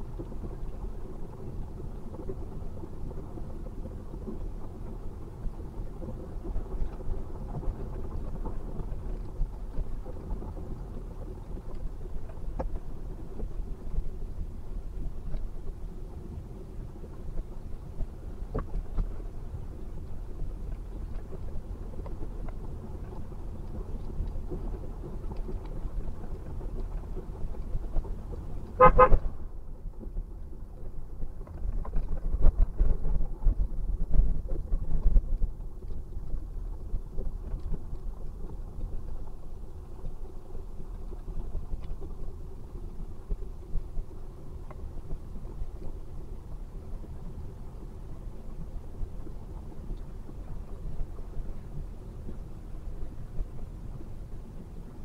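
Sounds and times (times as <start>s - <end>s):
road and engine rumble in car: 0.0s - 55.0s
vehicle horn honk: 28.8s - 29.2s.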